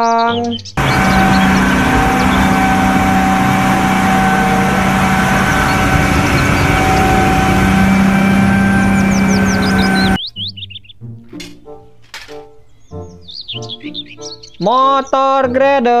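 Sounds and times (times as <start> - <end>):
dump truck diesel engine: 0.8 - 10.2.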